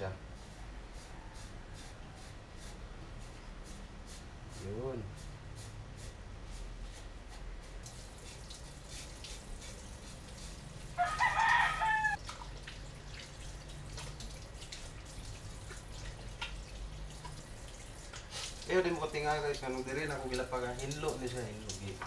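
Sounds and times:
rooster crowing: 0.9 - 2.4, 10.9 - 12.2.

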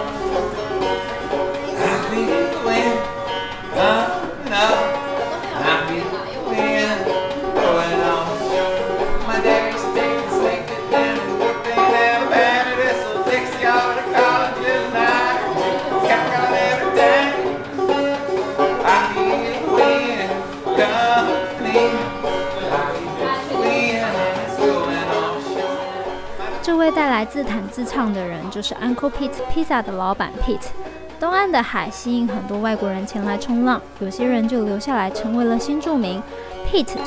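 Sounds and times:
banjo plucking: 0.0 - 37.0
man singing: 1.7 - 5.0, 5.6 - 17.7, 18.7 - 25.8.

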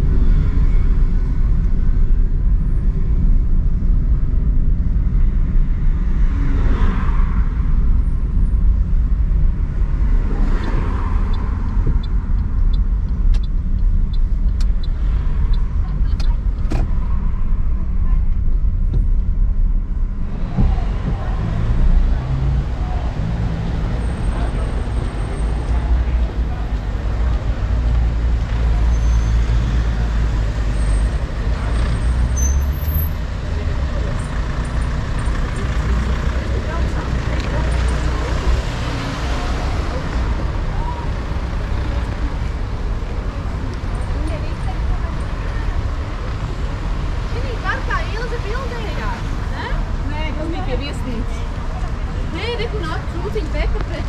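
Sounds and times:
low rumble: 0.0 - 28.8
diesel engine hum: 0.0 - 54.0.

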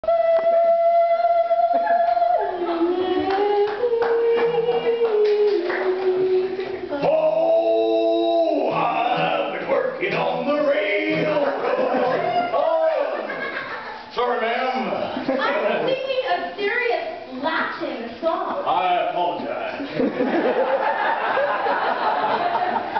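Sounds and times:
person singing long held notes: 0.0 - 9.3.

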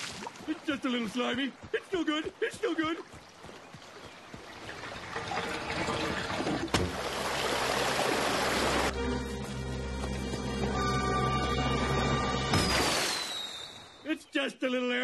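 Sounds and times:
music: 8.9 - 12.8
cartoon water rushing: 12.6 - 13.9.

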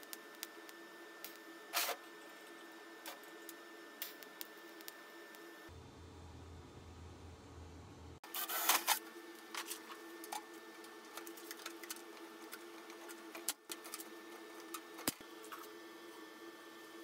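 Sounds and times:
steady low hum: 0.0 - 8.2.

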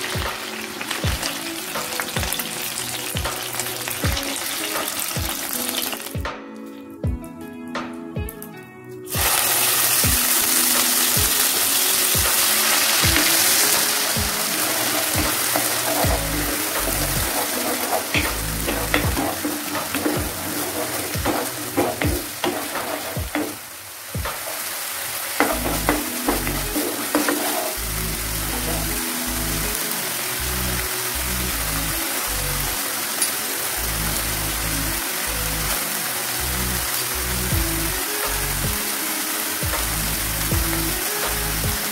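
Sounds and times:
paste sizzling in hot oil: 0.0 - 6.2, 9.1 - 41.9
wooden spatula scraping a pan: 12.3 - 23.6, 25.4 - 29.0.

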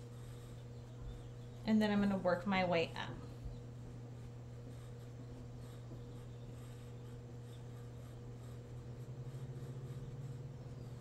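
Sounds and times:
steady low hum: 0.0 - 11.0
paintbrush brushing on paper: 3.9 - 11.0.

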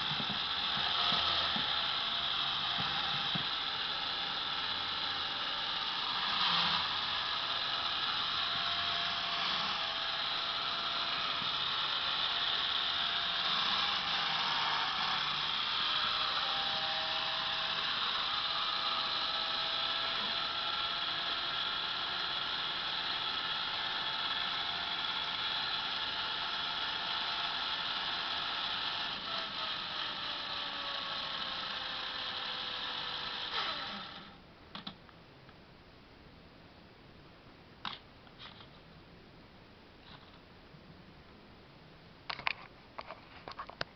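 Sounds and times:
motors and gears whining: 0.0 - 35.0.

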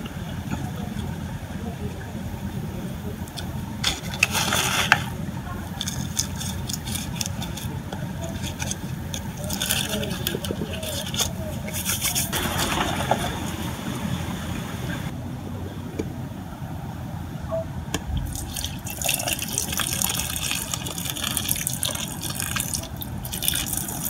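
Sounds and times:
steady low hum: 0.0 - 24.0
hands scraping potting soil: 3.8 - 5.2, 5.8 - 13.6.

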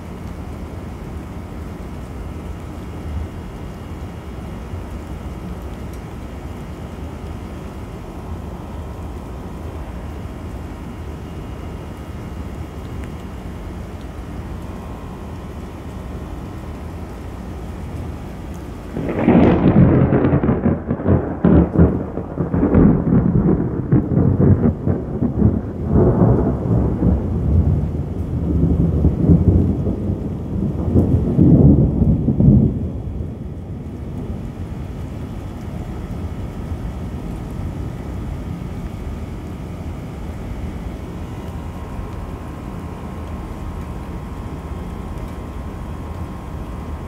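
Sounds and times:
rolling thunder: 18.9 - 37.5.

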